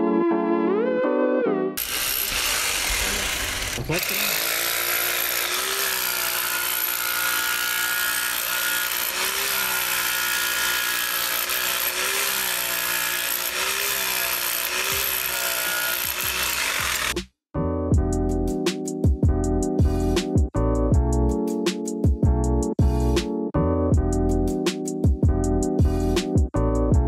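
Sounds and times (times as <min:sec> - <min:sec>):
power tool cutting stone: 0:01.8 - 0:17.2.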